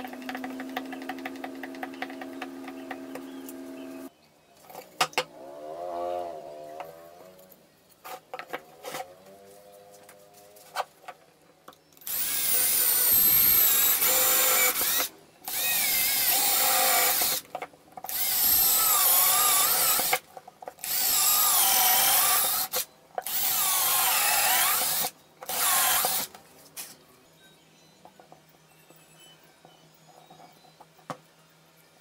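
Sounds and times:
cordless drill running: 0:12.0 - 0:17.4, 0:18.1 - 0:20.2, 0:20.8 - 0:26.3.

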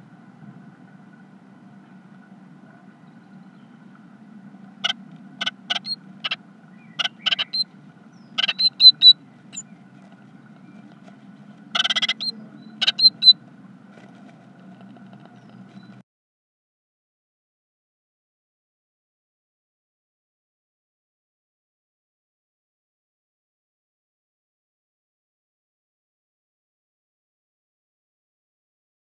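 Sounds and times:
steady low hum: 0:00.0 - 0:16.0
chicks peeping: 0:04.8 - 0:09.7, 0:10.6 - 0:13.4
bird scratching in nest: 0:13.9 - 0:16.0.

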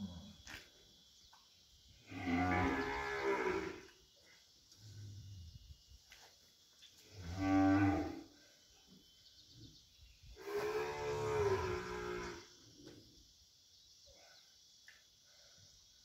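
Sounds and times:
cow mooing in distress: 0:02.1 - 0:03.9, 0:07.2 - 0:08.3, 0:10.4 - 0:12.5.

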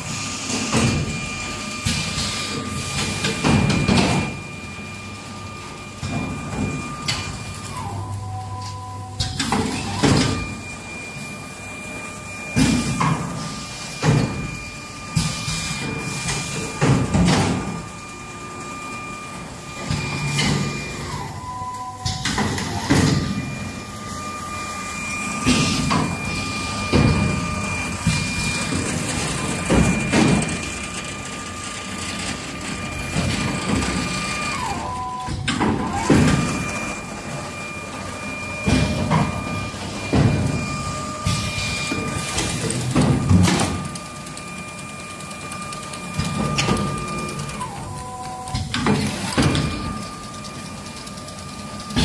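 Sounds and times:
pneumatic clunks and hisses: 0:00.0 - 0:04.4, 0:12.6 - 0:17.7, 0:25.0 - 0:28.9, 0:38.6 - 0:43.9
machine high whine: 0:00.0 - 0:52.0.

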